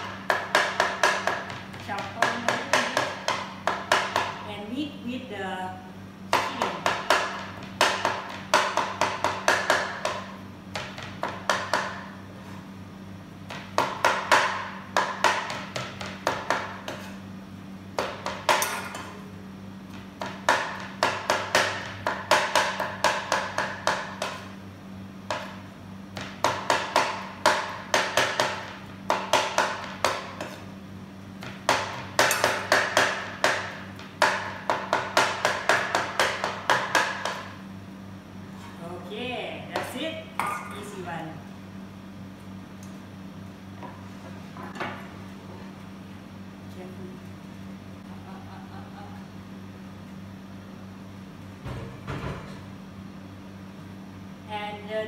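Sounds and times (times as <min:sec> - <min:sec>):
knife chopping on wooden board: 0:00.0 - 0:04.4, 0:06.3 - 0:12.2, 0:13.5 - 0:17.2, 0:19.9 - 0:24.6, 0:25.3 - 0:25.6, 0:26.2 - 0:30.7, 0:31.4 - 0:37.6.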